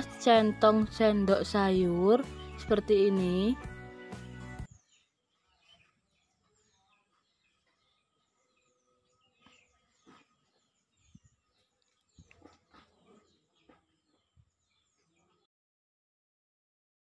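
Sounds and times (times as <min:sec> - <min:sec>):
small birds chirping: 0:04.6 - 0:15.5.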